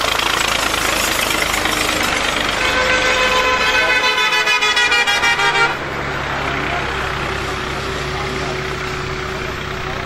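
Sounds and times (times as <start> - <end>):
road traffic passing: 0.0 - 10.0
vehicle horn pulsing: 2.3 - 5.9.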